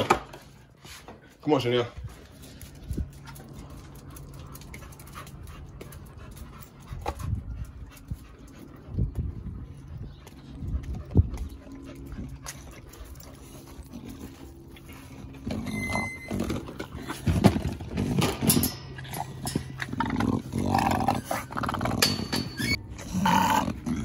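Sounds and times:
dogs growling: 10.8s - 24.0s.

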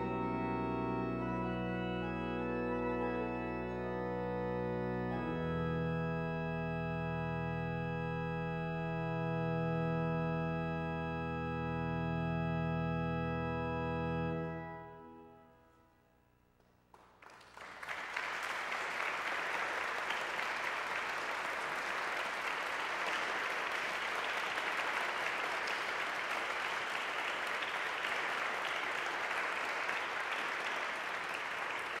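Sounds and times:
audience applauding: 16.9s - 32.0s.

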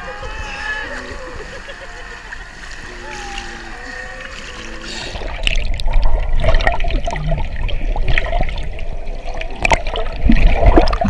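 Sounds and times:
underwater bubbling and gurgling: 0.0s - 11.0s
water surge: 0.0s - 11.0s.

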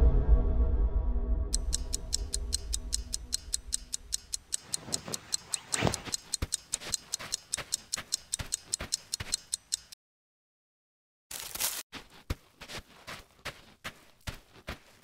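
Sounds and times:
rapid clock-like ticking: 1.6s - 10.0s.

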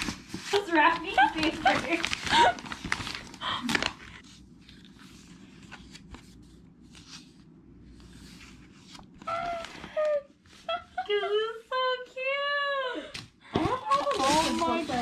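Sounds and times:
tissue paper crinkling: 0.0s - 7.3s, 13.7s - 15.0s
pages rustling: 0.0s - 10.6s, 13.8s - 15.0s.

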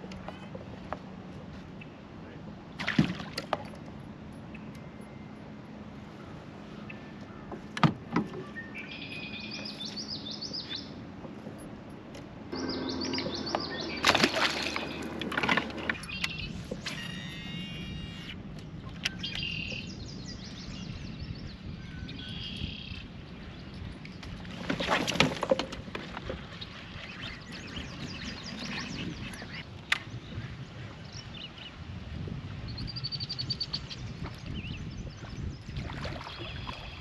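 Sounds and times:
songbirds chirping: 4.0s - 31.8s.

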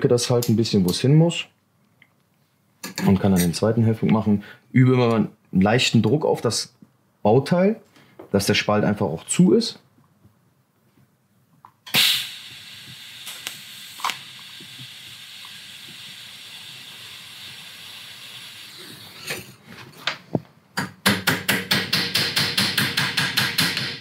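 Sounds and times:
gas hissing from torch: 11.9s - 19.6s.

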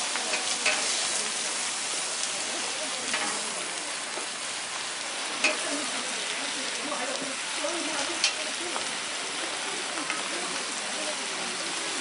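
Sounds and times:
food sizzling: 0.0s - 12.0s.

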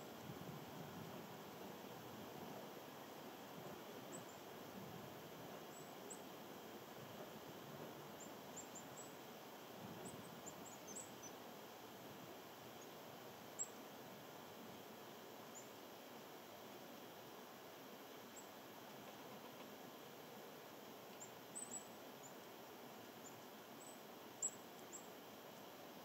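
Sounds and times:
steady outdoor hiss: 0.0s - 26.0s
small birds chirping: 8.2s - 9.3s, 10.0s - 11.4s, 21.2s - 22.4s, 23.2s - 25.2s.

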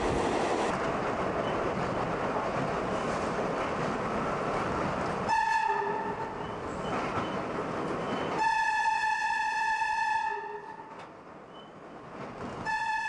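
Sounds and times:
subway train running through tunnel: 0.0s - 13.0s
train horn blasts: 5.3s - 6.2s, 8.4s - 10.9s, 12.6s - 13.0s.

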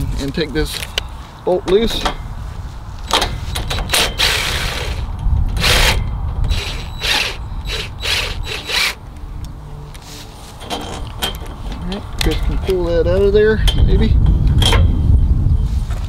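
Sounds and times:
cordless drill bursts: 4.0s - 5.0s, 5.6s - 9.0s.

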